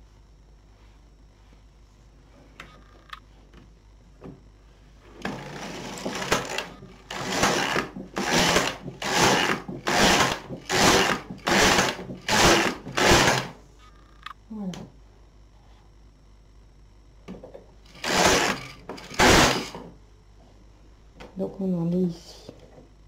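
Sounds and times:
knitting machine carriage passes: 0:05.3 - 0:13.5.

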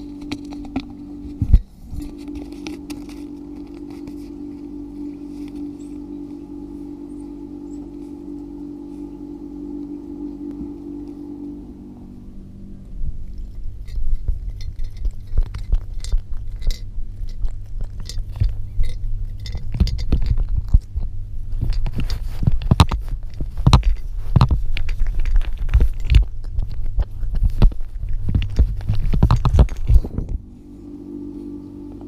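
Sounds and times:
cat crunching dry food: 0:00.0 - 0:06.8, 0:12.6 - 0:30.6.

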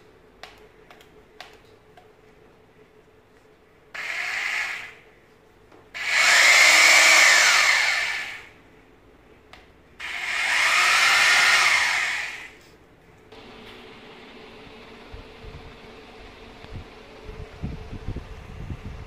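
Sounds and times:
rotary hammer drill whining: 0:04.0 - 0:05.0, 0:06.0 - 0:08.6, 0:10.0 - 0:12.6.

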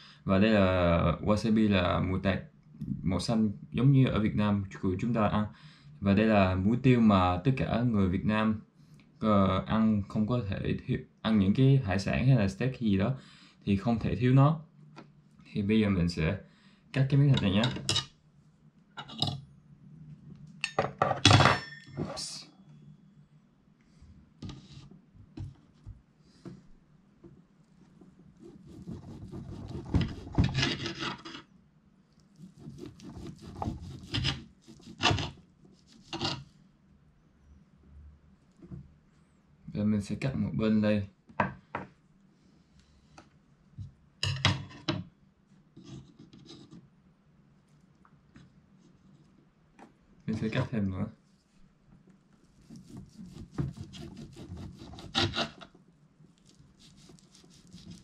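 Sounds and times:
knife sawing through steak: 0:32.5 - 0:36.2, 0:52.6 - 0:55.6, 0:56.8 - 0:58.0.

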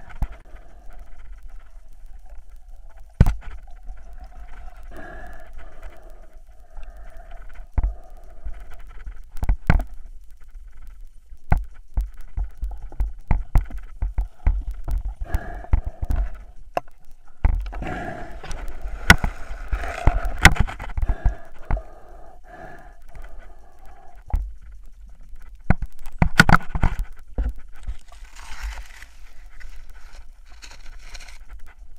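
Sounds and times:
rustling underwater: 0:00.0 - 0:31.9
underwater clicks and knocks: 0:01.1 - 0:04.8, 0:07.3 - 0:17.8, 0:18.4 - 0:21.9, 0:24.1 - 0:30.2.

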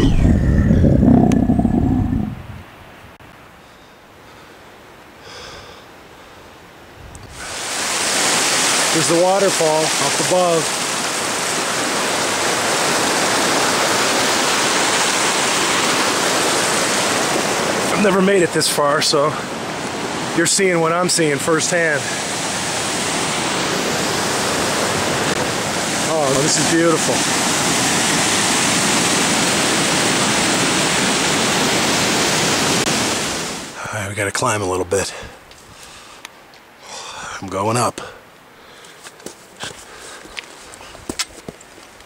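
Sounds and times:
stream rushing over rocks: 0:06.8 - 0:34.3.

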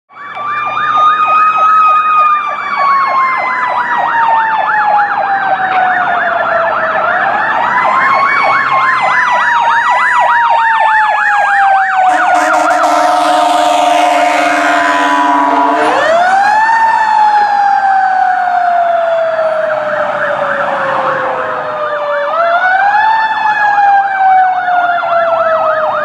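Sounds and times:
siren fast yelp: 0:00.1 - 0:26.0
siren wailing: 0:00.1 - 0:26.0
horn blast: 0:12.1 - 0:16.3.

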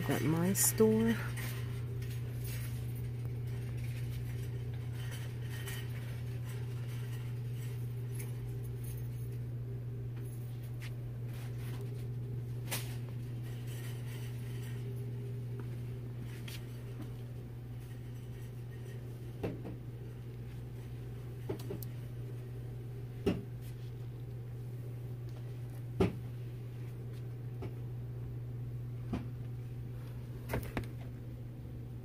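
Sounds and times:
low hum of shop: 0:00.0 - 0:32.0.

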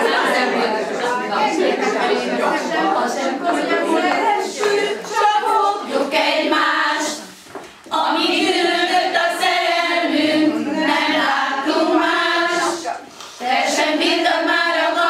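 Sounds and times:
women singing unaccompanied: 0:00.0 - 0:15.0.

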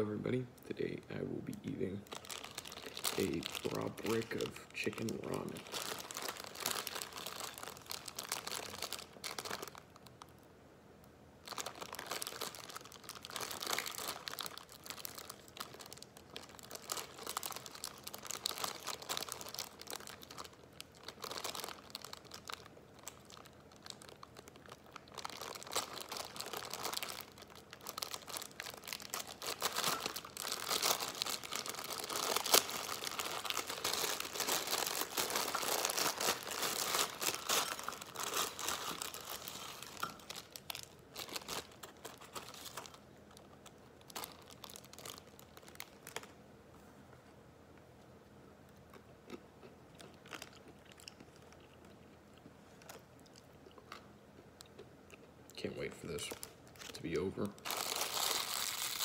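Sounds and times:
plastic wrapper crinkling: 0:01.2 - 0:10.5, 0:11.4 - 0:46.4, 0:56.1 - 0:59.0.

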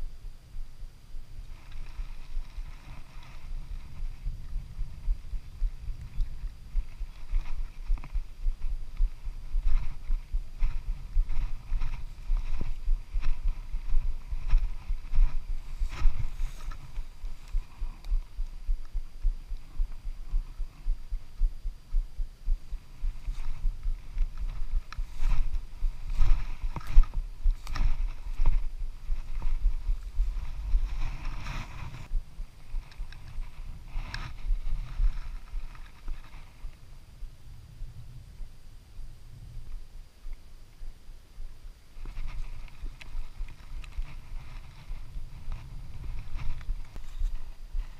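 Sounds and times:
wind and handling rumble: 0:00.0 - 0:47.9.

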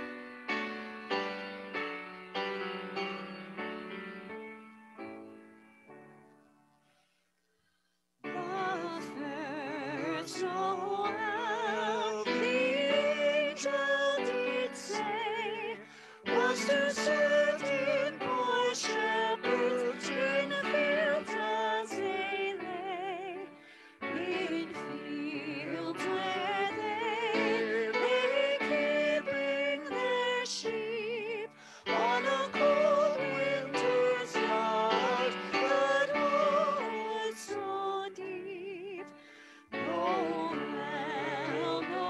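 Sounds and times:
singer breathing: 0:15.8 - 0:16.3, 0:23.5 - 0:24.0, 0:31.5 - 0:31.9, 0:39.1 - 0:39.8
sustained accompaniment: 0:31.9 - 0:37.2.

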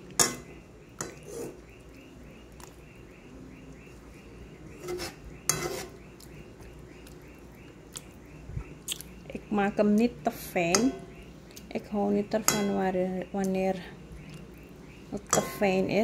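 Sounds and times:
spatula scraping a cooking pot: 0:01.0 - 0:01.6, 0:04.7 - 0:06.0.

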